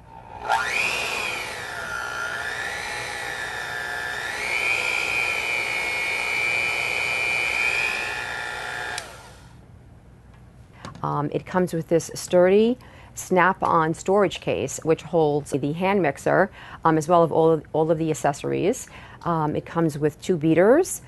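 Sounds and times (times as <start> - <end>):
hand mixer motor whine: 0.0 - 9.6.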